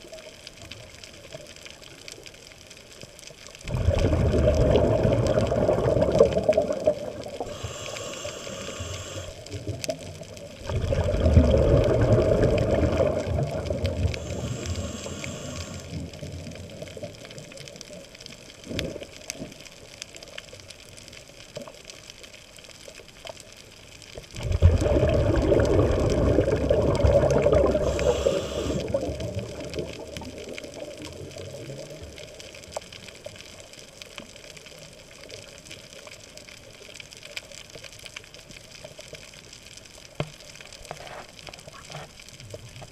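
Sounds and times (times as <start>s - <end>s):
exhaled bubbles bubbling: 3.2s - 20.3s, 24.2s - 36.1s
regulator hissing inhales: 7.4s - 9.5s, 14.2s - 16.0s, 27.8s - 29.0s.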